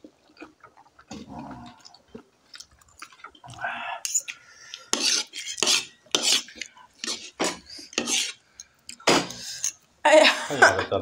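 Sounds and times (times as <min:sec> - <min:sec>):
cutlery scraping plates: 0:04.9 - 0:08.4, 0:09.0 - 0:09.8.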